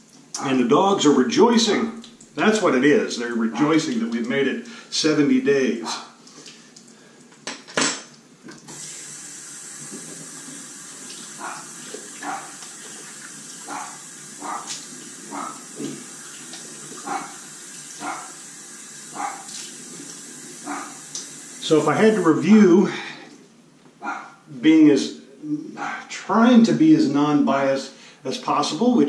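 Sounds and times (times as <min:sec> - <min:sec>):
tap running into sink: 0:09.7 - 0:13.0, 0:15.6 - 0:17.3.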